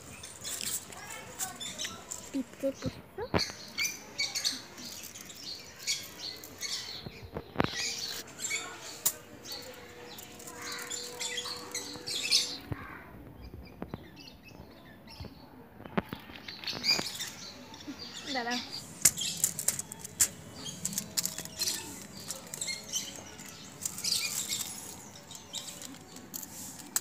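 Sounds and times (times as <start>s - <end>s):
birds chirping: 0.0s - 27.0s
aluminium foil crinkling: 7.6s - 12.1s, 18.8s - 27.0s.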